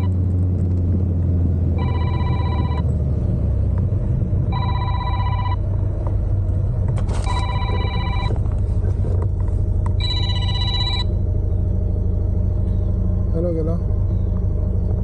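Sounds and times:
low rumble: 0.0 - 15.0
electronic ringing tone: 1.8 - 2.9, 4.5 - 5.7, 7.2 - 8.3, 10.0 - 11.2.

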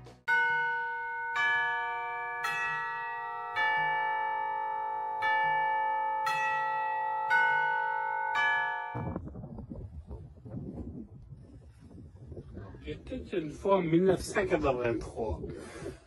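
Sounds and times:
slow bell tune: 0.3 - 9.5.

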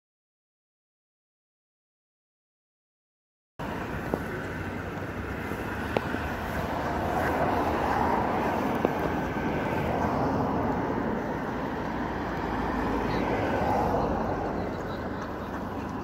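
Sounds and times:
road traffic going by: 3.6 - 16.0.

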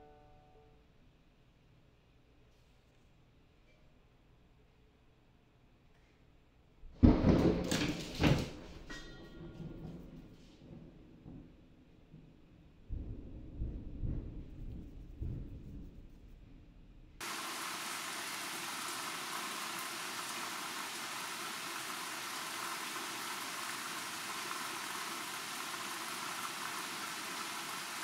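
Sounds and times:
thunder rumble: 12.9 - 16.2
rain hissing: 17.2 - 28.0.

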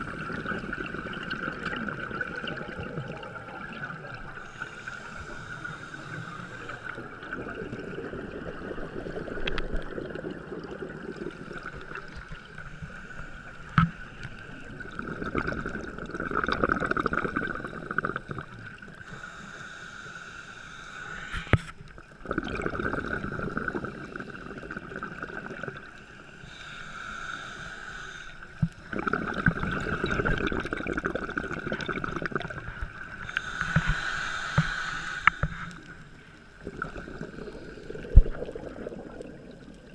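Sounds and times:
scuba regulator exhaled bubbles: 14.8 - 18.7, 21.2 - 25.9, 28.7 - 36.0, 36.6 - 39.9.

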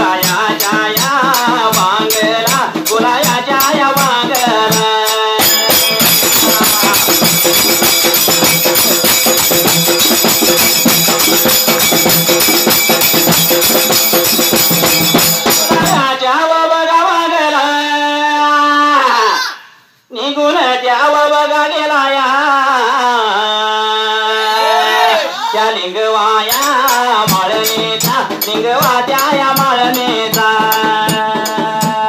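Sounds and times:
man singing: 0.0 - 11.6, 13.8 - 19.4, 20.1 - 32.0
rattling percussion beat: 0.0 - 16.1, 26.4 - 32.0
held instrumental tones: 4.5 - 16.1.

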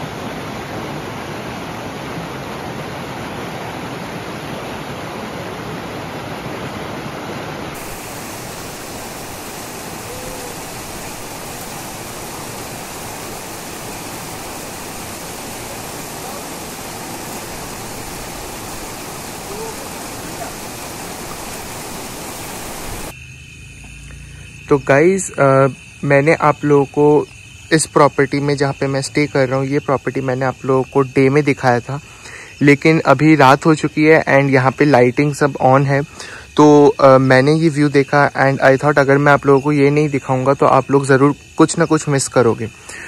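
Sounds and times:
river water rushing: 0.0 - 23.1.

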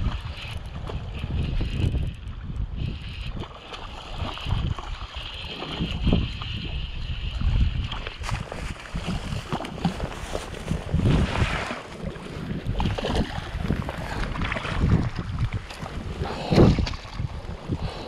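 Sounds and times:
wind buffeting microphone: 0.0 - 18.0
fish thrashing and splashing water: 3.2 - 6.8, 7.4 - 17.6.

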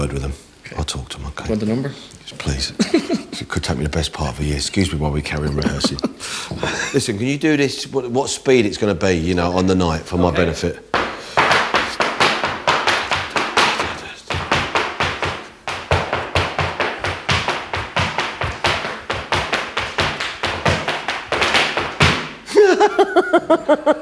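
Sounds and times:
man laughing: 2.8 - 3.5, 5.4 - 7.1, 22.5 - 24.0
dance shoes tapping on hard floor: 5.6 - 6.8, 10.9 - 22.5.

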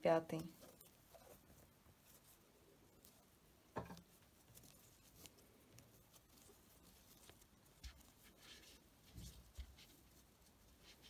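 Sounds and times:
crochet hook rustling and clicking: 3.9 - 11.0.

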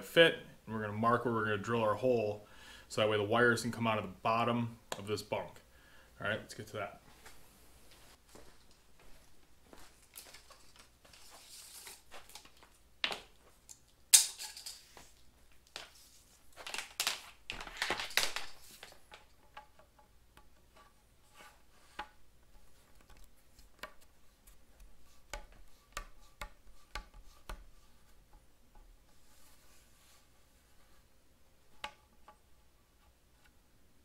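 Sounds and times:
tape ticking on wooden board: 24.8 - 27.7.

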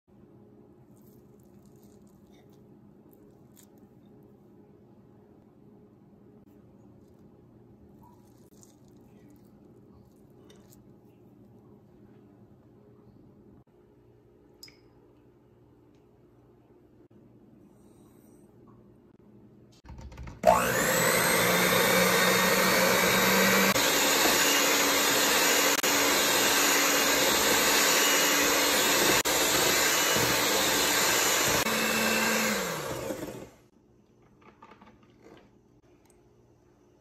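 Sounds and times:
electric hand mixer whirring: 20.4 - 33.7.

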